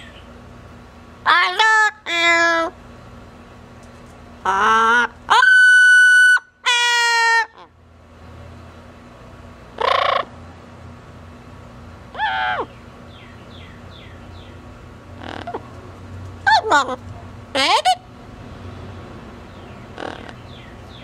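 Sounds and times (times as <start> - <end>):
parrot calling: 1.2 - 2.8, 4.4 - 7.7, 9.8 - 10.3, 12.1 - 14.5, 15.2 - 15.7, 16.4 - 18.1, 19.8 - 20.8
parrot squawk: 4.4 - 7.7, 9.8 - 10.3, 12.1 - 12.7, 15.2 - 15.6, 17.6 - 18.0, 20.0 - 20.4.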